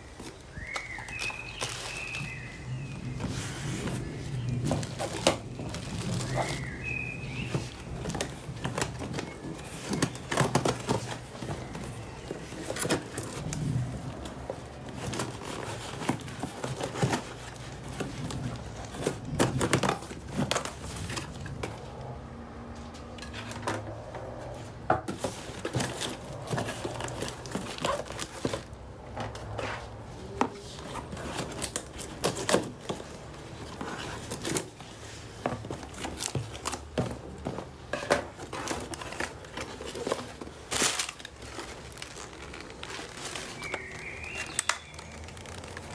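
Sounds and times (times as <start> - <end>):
cardboard flaps scraping: 0.0 - 22.4, 24.3 - 45.9
plastic and paper crinkling: 0.0 - 45.9.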